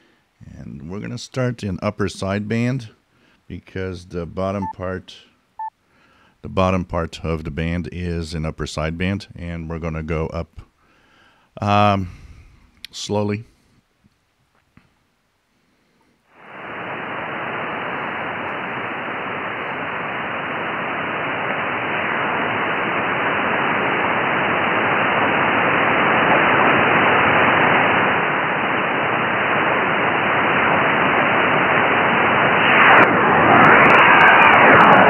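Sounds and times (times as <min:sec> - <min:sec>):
radio receiver hiss and static: 0:16.4 - 0:35.0.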